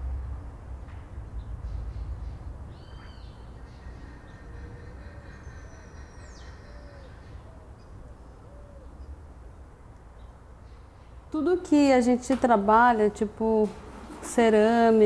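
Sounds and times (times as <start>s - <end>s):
bird low hooting notes: 1.2s - 11.2s.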